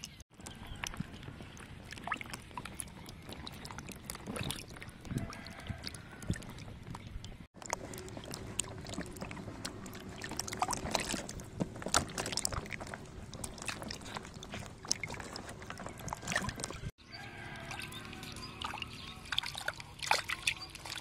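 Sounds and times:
hands sloshing water: 0.3 - 17.0, 17.6 - 21.0.

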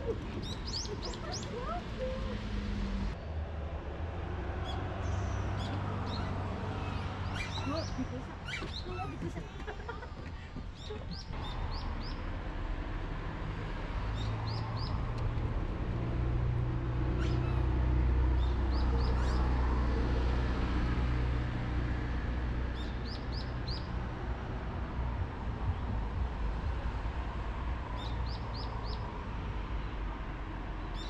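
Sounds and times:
small bird chirping: 4.7 - 8.9
low rumble: 23.9 - 28.0.

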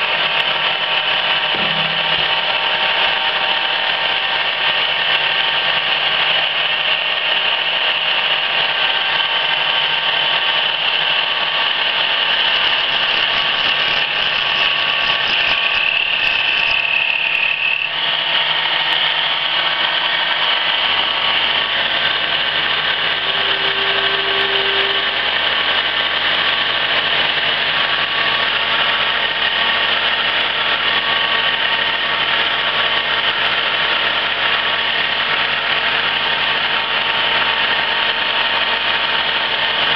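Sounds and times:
deep machine hum: 0.0 - 4.4, 20.0 - 26.8
high machine whine: 0.0 - 6.1, 8.2 - 28.8
lower machine whine: 0.0 - 6.1, 7.9 - 28.8.

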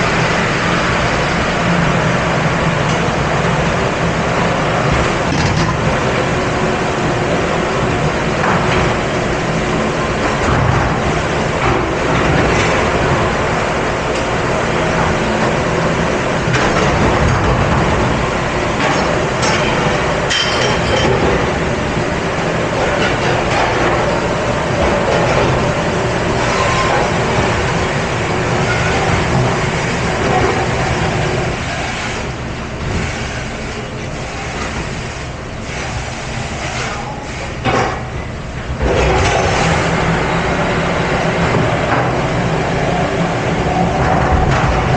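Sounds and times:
dishwashing machinery rumbling: 0.0 - 44.9
dishes and racks clattering: 16.5 - 21.7, 38.8 - 40.0.

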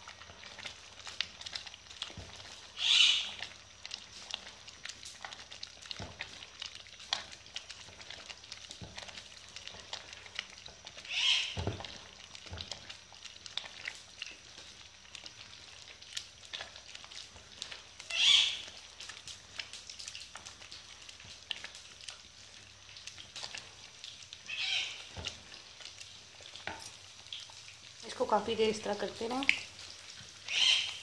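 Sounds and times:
spoon stirring thick stew: 3.3 - 17.9.

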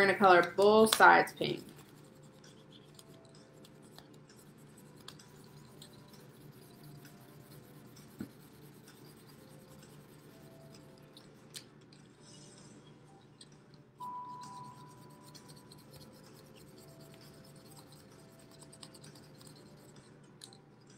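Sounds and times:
marker scribbling on paper: 1.4 - 11.2, 14.4 - 20.0.

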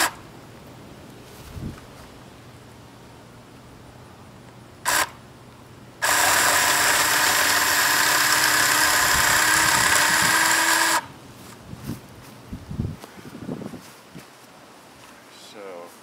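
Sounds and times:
electric chainsaw running: 4.8 - 5.2, 6.0 - 11.1.

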